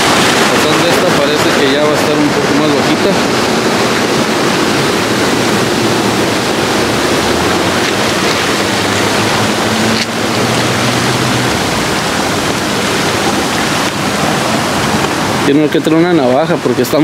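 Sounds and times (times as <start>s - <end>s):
surf washing over rocks: 0.0s - 17.0s.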